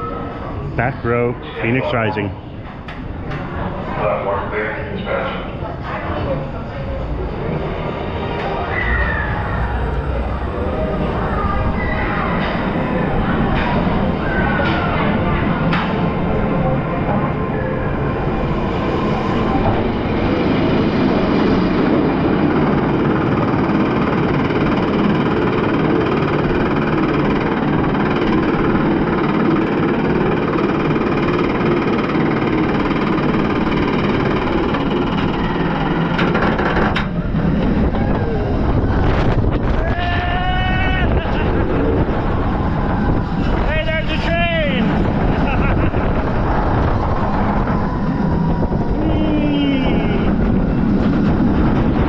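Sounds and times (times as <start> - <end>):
roller coaster rumble: 0.0 - 52.0.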